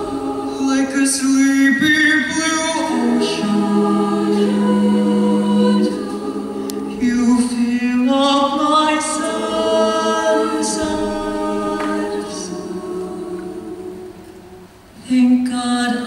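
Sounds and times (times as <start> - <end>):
choir singing held chords: 0.0 - 16.0.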